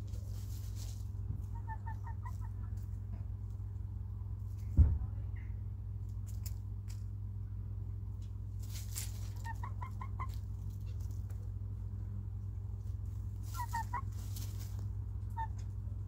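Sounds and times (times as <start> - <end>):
hens clucking: 0.0 - 3.6, 8.6 - 11.8, 12.4 - 16.0
steady low hum: 0.0 - 16.0
scratchy rustling: 12.8 - 14.9.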